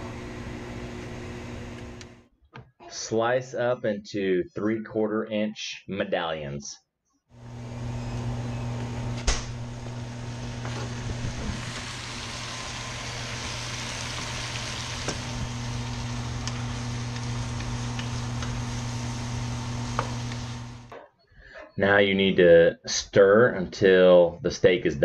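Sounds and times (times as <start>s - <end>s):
steady low hum: 7.4s - 20.9s
meat sizzling in a frying pan: 10.3s - 20.8s
wooden spoon stirring: 14.8s - 20.9s.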